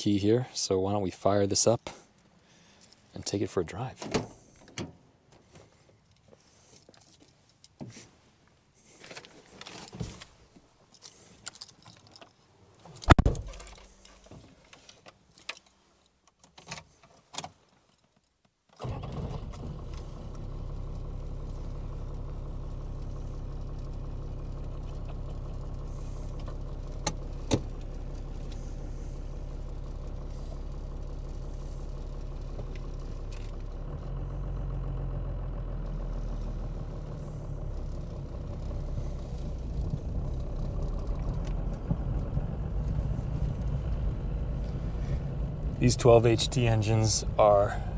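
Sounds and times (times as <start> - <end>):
keys jangling: 10.9 - 12.4
loud thump: 13.1 - 13.6
diesel engine idling: 18.8 - 47.9.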